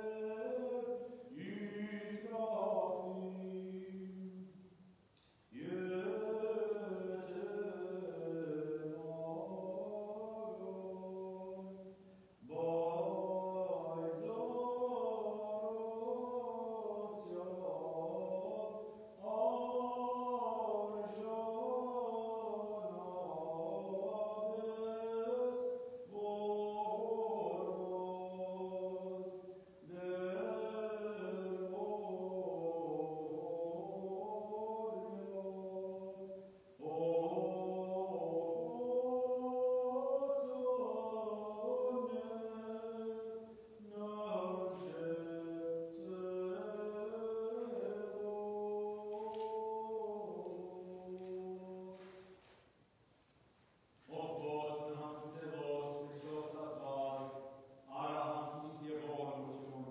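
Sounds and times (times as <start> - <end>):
liturgical chant singing: 0.0 - 52.8, 53.9 - 59.9.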